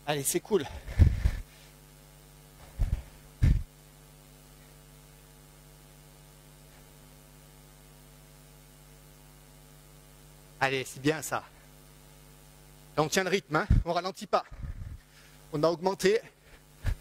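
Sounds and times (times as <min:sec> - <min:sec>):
electrical mains hum: 0:00.0 - 0:17.0
breath puffs on microphone: 0:00.7 - 0:01.8, 0:14.5 - 0:15.5.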